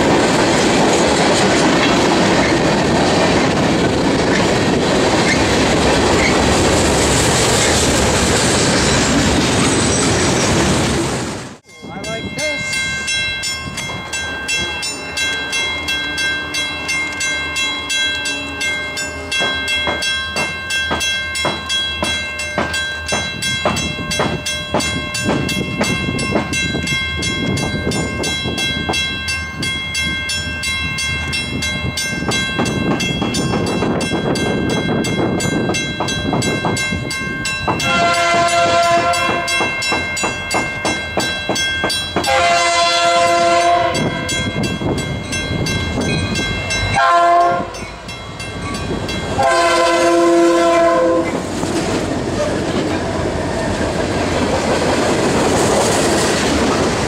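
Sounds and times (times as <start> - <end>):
train rumbling: 0.0 - 57.0
locomotive air horn: 37.8 - 39.6, 42.2 - 44.1, 47.0 - 47.8, 49.4 - 51.4.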